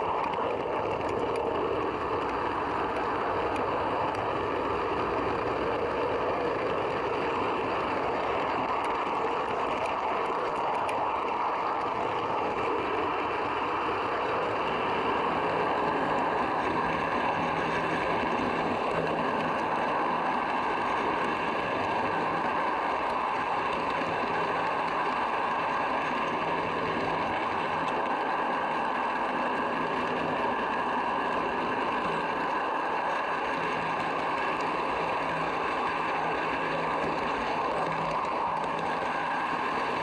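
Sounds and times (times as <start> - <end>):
model train rolling on track: 0.0 - 40.0.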